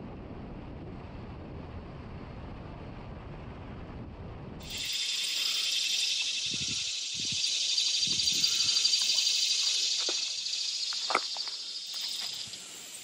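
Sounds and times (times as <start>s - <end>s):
insects buzzing: 4.6s - 13.0s.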